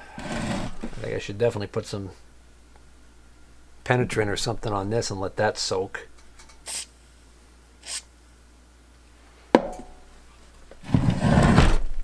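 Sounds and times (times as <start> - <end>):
rubbing and scraping on bench: 10.8 - 11.8.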